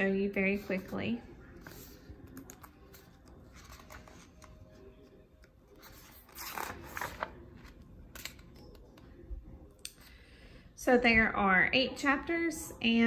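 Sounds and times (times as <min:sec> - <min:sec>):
book pages turning: 0:01.5 - 0:09.1.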